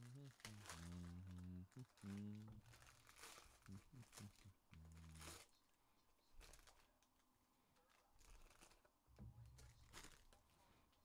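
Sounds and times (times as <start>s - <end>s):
foil wrappers crinkling and tearing: 0.0s - 5.6s, 6.4s - 7.0s, 7.8s - 8.8s, 9.5s - 10.4s.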